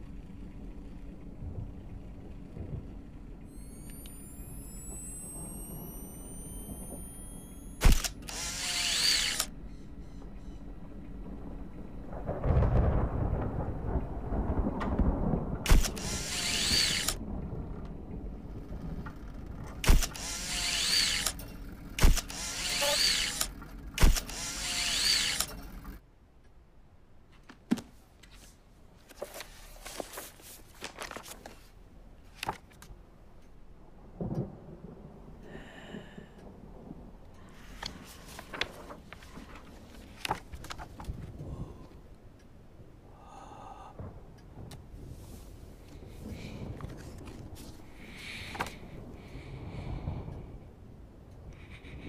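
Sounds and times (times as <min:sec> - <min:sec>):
camera motor whir: 0:03.5 - 0:10.6, 0:15.7 - 0:17.2, 0:19.2 - 0:26.0
camera shutter click: 0:03.6 - 0:09.5, 0:15.7 - 0:17.2, 0:19.8 - 0:25.6
handling sounds: 0:27.3 - 0:32.9.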